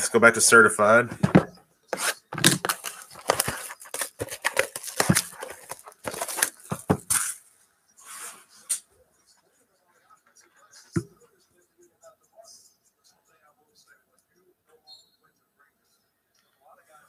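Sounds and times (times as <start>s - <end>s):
box set down rustle: 1.1s - 7.4s
shrink wrap tearing and crinkling: 2.0s - 7.3s.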